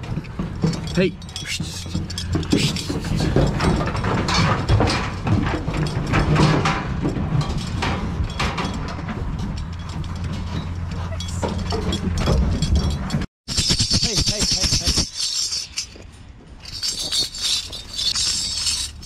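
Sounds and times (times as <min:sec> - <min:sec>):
lambs knocking in metal crate: 0:00.0 - 0:13.3.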